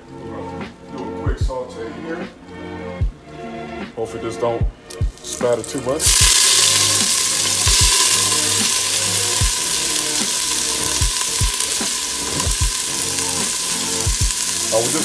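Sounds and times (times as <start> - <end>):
shallots sizzling in oil: 5.1 - 15.0.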